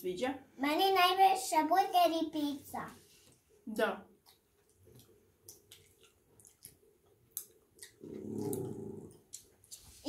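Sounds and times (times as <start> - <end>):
child chewing gummy candy: 4.2 - 9.9.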